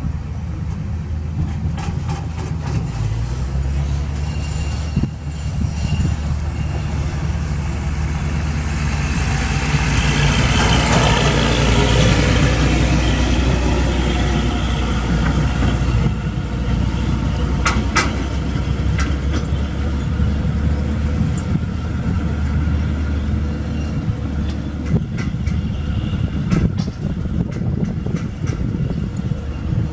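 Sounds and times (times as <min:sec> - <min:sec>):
heavy truck engine running: 0:00.0 - 0:29.9.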